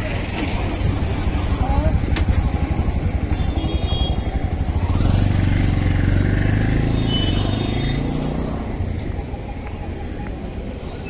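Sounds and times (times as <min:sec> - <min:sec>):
auto-rickshaw engine chugging: 0:00.0 - 0:11.0.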